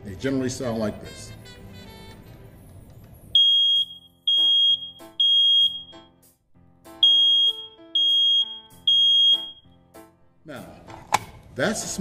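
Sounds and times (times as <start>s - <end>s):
smoke alarm beeping: 3.4s - 6.2s, 7.0s - 9.7s.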